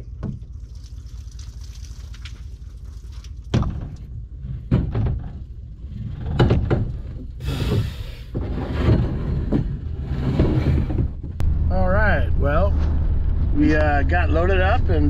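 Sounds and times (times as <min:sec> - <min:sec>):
canoe scraping on rack: 0:04.4 - 0:11.4.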